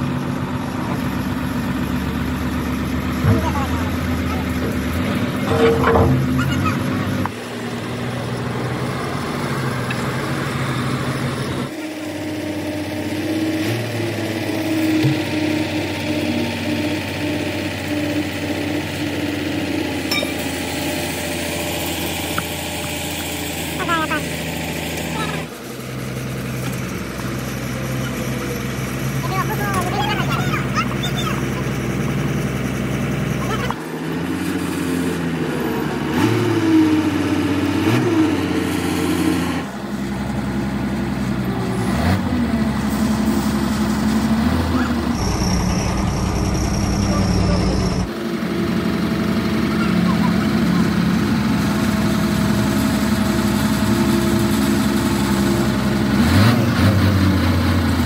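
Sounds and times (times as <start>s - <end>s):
engine running: 0.0s - 58.0s
ringing metallic clink: 20.1s - 20.6s.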